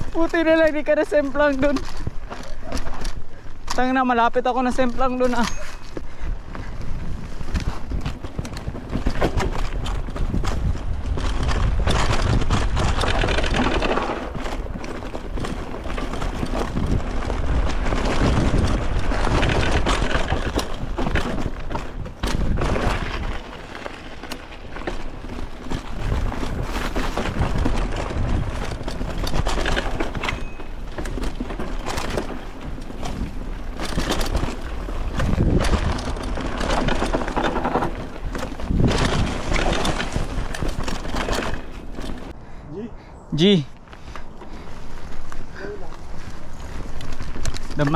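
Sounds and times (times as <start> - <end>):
rattling and knocking from bumps: 0.0 - 42.4
wind buffeting microphone: 5.8 - 47.9.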